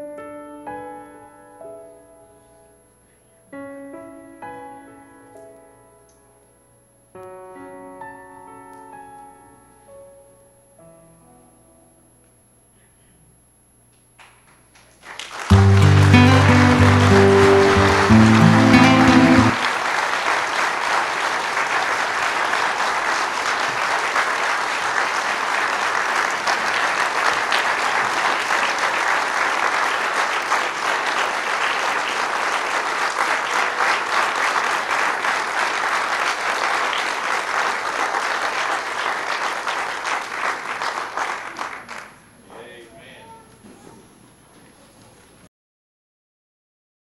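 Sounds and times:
music: 0.0 - 12.4, 15.5 - 19.7
audience applauding: 14.2 - 42.2.

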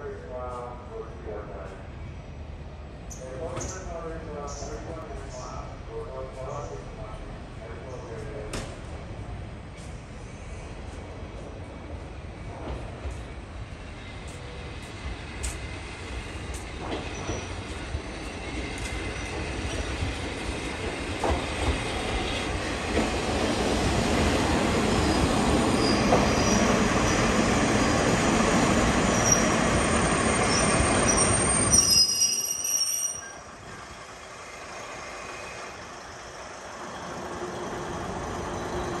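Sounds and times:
high-pitched brake squeals: 30.2 - 33.5.

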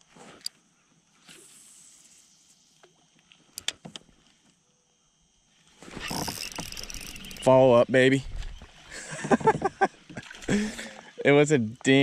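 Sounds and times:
fishing reel clicks: 6.0 - 7.7.

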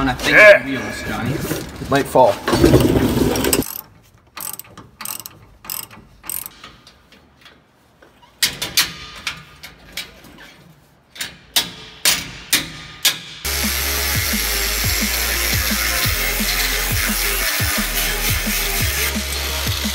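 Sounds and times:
ratchet wrench clicking: 3.6 - 6.6.

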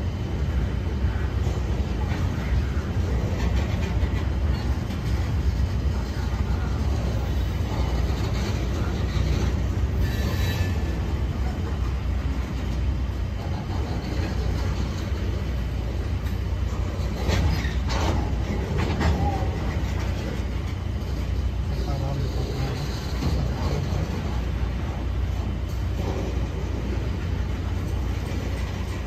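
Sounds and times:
train wheels rumbling on rails: 0.0 - 29.0
train wheel squeal: 2.0 - 11.8, 16.7 - 24.5.

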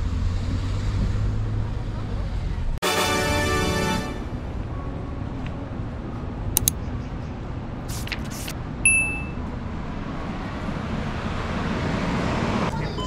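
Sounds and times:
short high electronic beep: 8.9 - 9.4.

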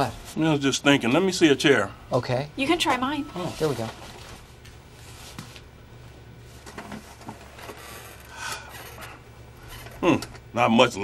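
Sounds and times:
low room hum: 0.0 - 11.0
office chair creaking: 6.6 - 10.4.

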